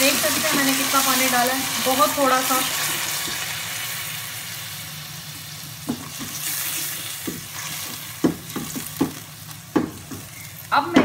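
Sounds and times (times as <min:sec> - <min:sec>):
onions sizzling in hot oil: 0:00.0 - 0:11.0
spatula scraping and knocking pan: 0:05.8 - 0:11.0.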